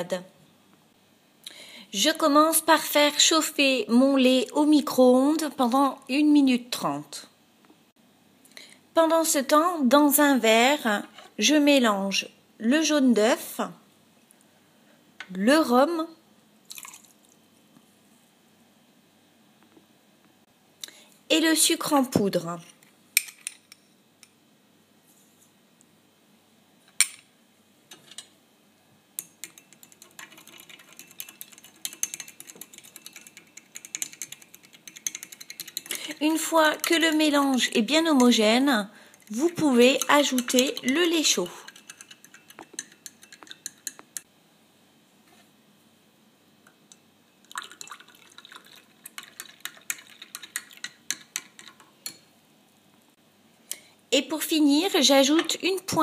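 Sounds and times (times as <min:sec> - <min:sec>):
milk pouring and splashing into glass: 0:16.7 - 0:17.4, 0:47.4 - 0:50.8
stirring rod clicking against glass: 0:29.2 - 0:36.0, 0:39.2 - 0:44.3, 0:49.1 - 0:52.2.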